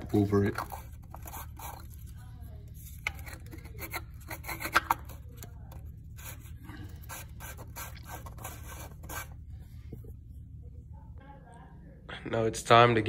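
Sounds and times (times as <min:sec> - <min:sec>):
steady low hum: 0:00.0 - 0:13.0
plastic cap scraping and clicking: 0:03.0 - 0:05.2.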